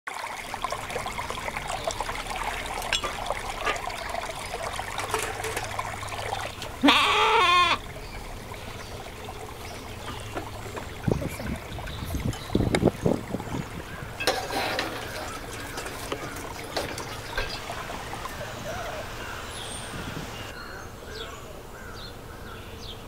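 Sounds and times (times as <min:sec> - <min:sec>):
stream trickling over stones: 0:00.1 - 0:20.6
metal dishes clinking: 0:02.7 - 0:06.6, 0:13.9 - 0:18.6
sheep bleating: 0:06.8 - 0:07.8.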